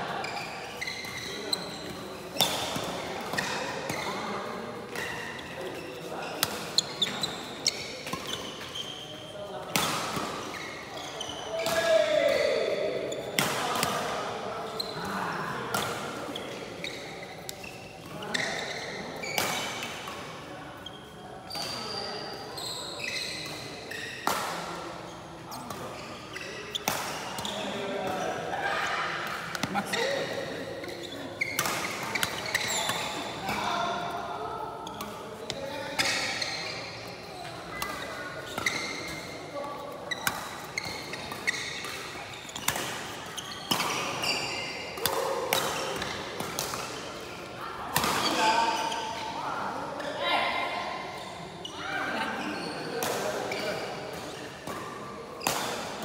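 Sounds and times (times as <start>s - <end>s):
shoes squeaking on court floor: 0.0s - 56.0s
rackets hitting shuttlecock: 47.9s - 48.4s, 53.0s - 56.0s.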